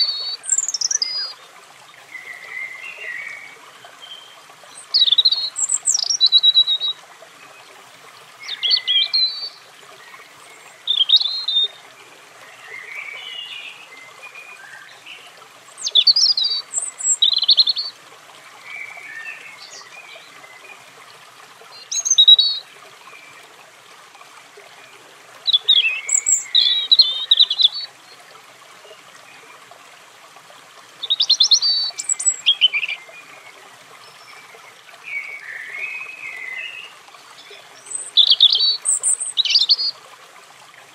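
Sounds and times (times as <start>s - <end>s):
robin singing: 0.0s - 1.4s, 2.1s - 7.7s, 8.3s - 18.0s, 21.7s - 23.4s, 25.4s - 27.9s, 31.0s - 40.0s.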